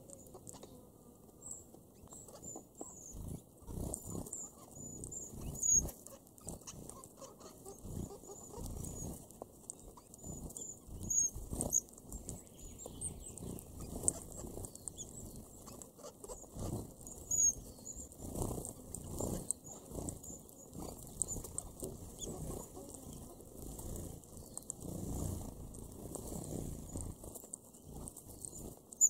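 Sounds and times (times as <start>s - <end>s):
birds rustling in husks: 0.0s - 29.0s
finches calling: 1.9s - 9.2s, 9.8s - 23.6s.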